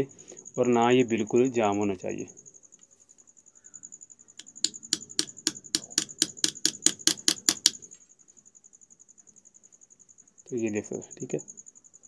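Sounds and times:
cricket chirping: 0.0 - 12.0
light hammer tapping metal: 4.4 - 7.8.

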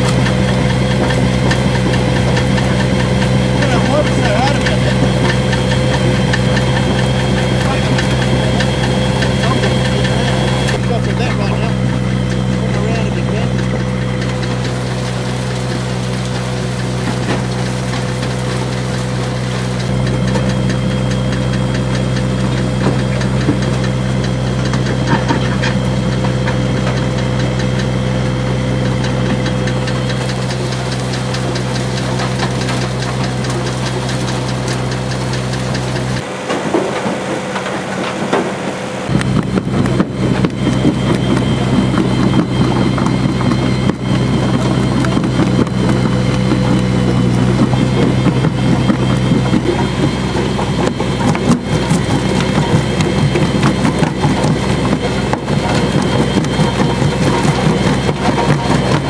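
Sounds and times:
engine idling with ticking: 0.0 - 59.0.

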